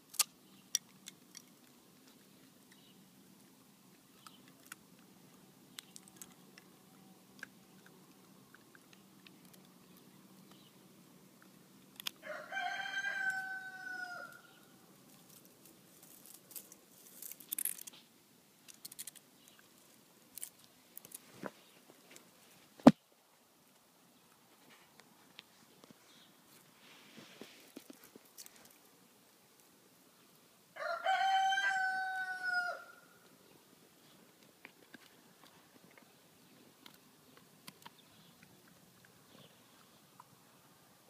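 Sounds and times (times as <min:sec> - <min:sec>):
rooster crowing: 0:12.2 - 0:14.6, 0:30.8 - 0:33.2
faint rustles: 0:24.3 - 0:29.0.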